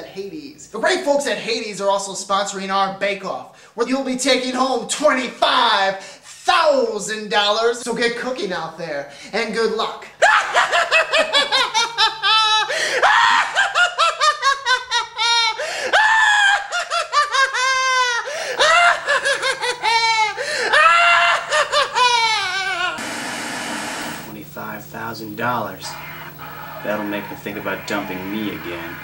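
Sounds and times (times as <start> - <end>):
person laughing loudly: 10.2 - 23.0.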